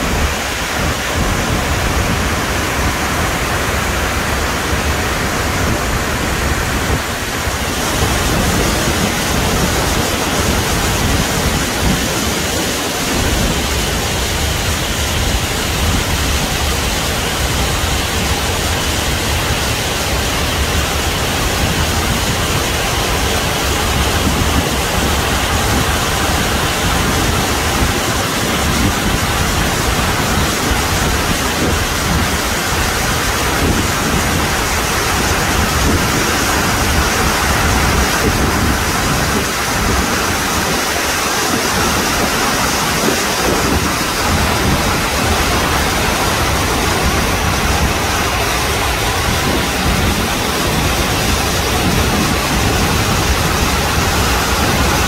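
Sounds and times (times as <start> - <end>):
waterfall rushing: 0.0 - 55.0.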